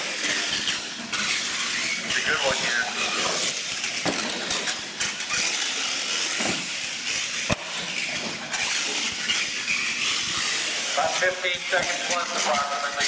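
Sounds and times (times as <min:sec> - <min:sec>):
toy truck motor and tyres: 0:00.0 - 0:13.0.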